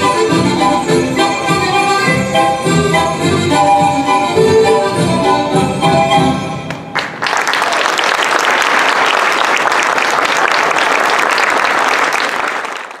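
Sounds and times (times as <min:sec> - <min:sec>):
folk-dance music: 0:00.0 - 0:07.5
audience applauding: 0:06.7 - 0:13.0.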